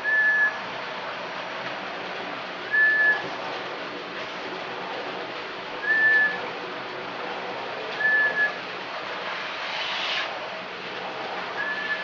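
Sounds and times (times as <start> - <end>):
short level whistles: 2.7 - 3.2, 5.8 - 6.4, 8.0 - 8.6, 11.6 - 12.0
hiss: 9.2 - 10.4.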